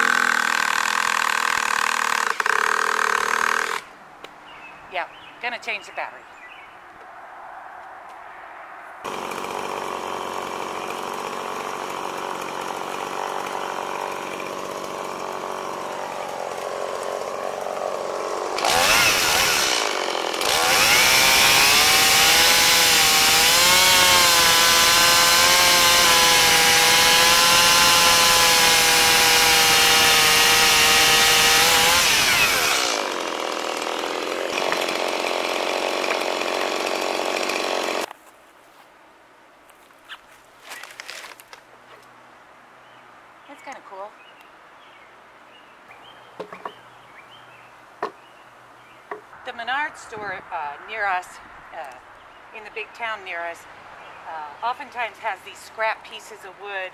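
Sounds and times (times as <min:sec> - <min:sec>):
chainsaw cutting into log: 0:00.0 - 0:03.9, 0:09.0 - 0:38.1.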